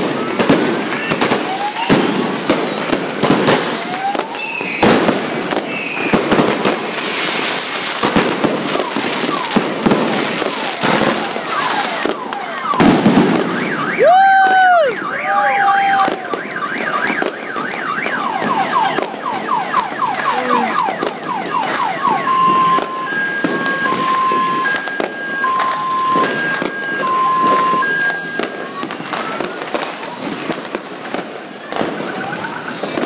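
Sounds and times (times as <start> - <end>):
fireworks crackling and popping: 0.0 - 33.0
car alarm: 0.2 - 5.0, 8.6 - 9.7, 10.3 - 14.1, 14.8 - 30.4, 31.7 - 33.0.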